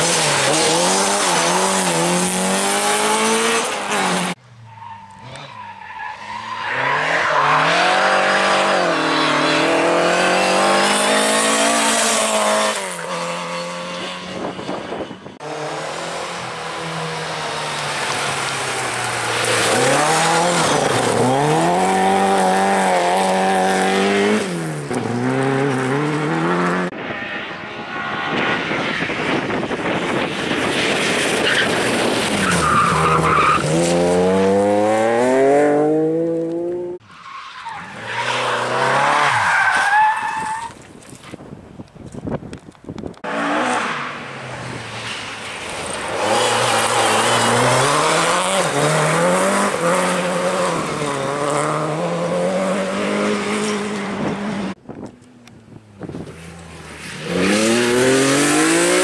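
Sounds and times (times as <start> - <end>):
rally car engines revving: 0.0 - 40.4, 43.1 - 54.8, 56.0 - 59.0
tyres skidding on gravel: 17.4 - 26.6, 43.0 - 52.1.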